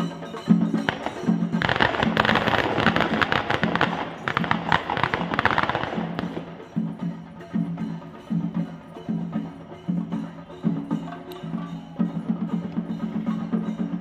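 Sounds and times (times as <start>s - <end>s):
drums beating: 0.0s - 14.0s
firecrackers crackling: 0.7s - 7.0s.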